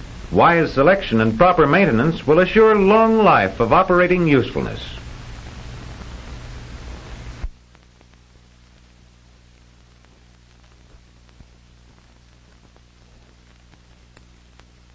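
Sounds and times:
film hiss: 0.0 - 14.9
steady mains hum: 0.0 - 14.9
faint clicks: 7.4 - 14.9.

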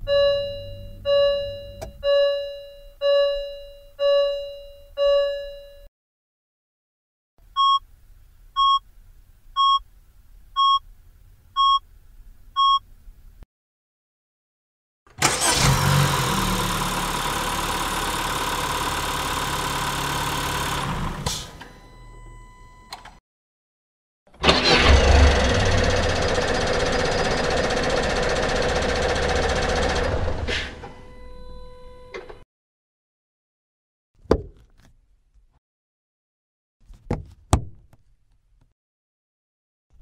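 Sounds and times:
car warning chime: 0.0 - 5.9, 21.6 - 23.1, 30.9 - 32.2
car engine running: 15.2 - 21.4, 24.4 - 30.4.

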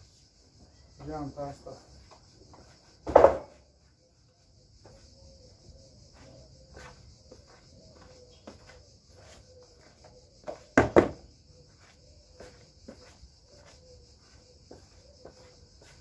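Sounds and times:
crickets trilling: 0.0 - 16.0.

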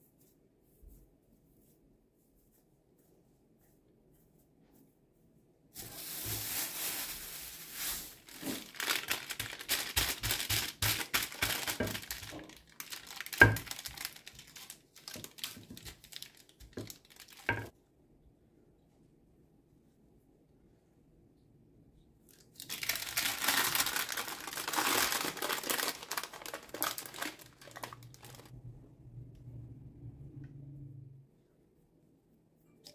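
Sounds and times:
plastic bag and paper crinkling: 5.8 - 17.7, 22.5 - 28.5.

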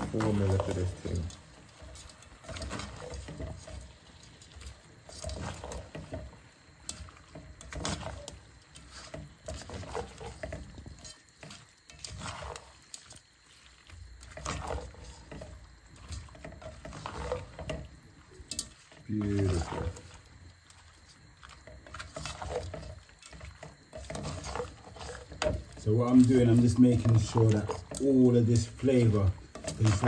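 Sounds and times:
spoon scraping pot: 0.0 - 13.1, 14.2 - 28.1, 28.7 - 30.0.

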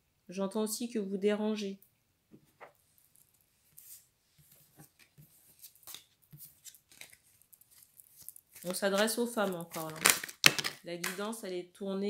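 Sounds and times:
soft rustles: 2.5 - 9.8.

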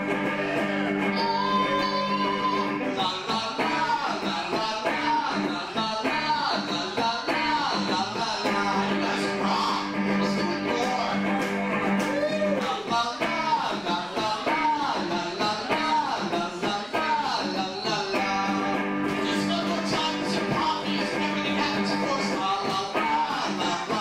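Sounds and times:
electric guitar: 0.0 - 24.0
man singing rock song: 0.0 - 24.0.

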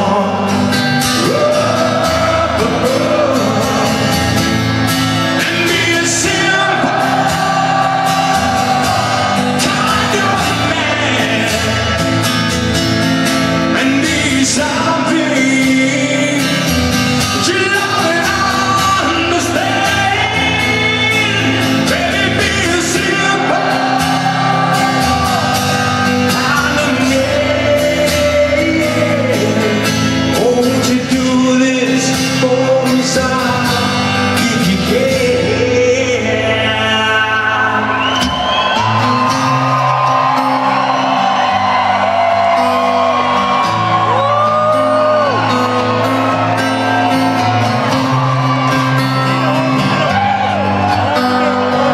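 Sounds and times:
man singing: 0.0 - 4.5, 5.1 - 12.4, 13.3 - 38.8, 49.4 - 51.9
live rock band slow song: 0.0 - 51.9.

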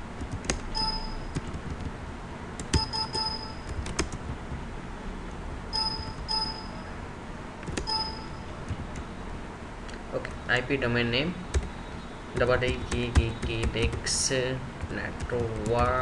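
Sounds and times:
computer keyboard typing: 0.2 - 2.0, 2.6 - 4.6, 5.8 - 6.6, 7.6 - 9.1, 11.5 - 16.0
electronic ding beeps: 0.8 - 1.3, 2.8 - 3.7, 5.7 - 6.9, 7.9 - 8.5.

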